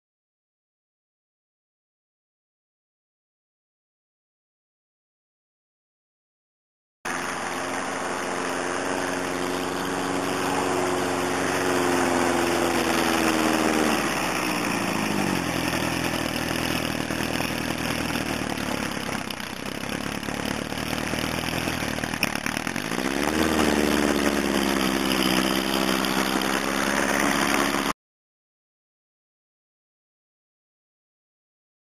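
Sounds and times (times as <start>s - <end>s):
snowcat engine running: 7.1s - 28.0s.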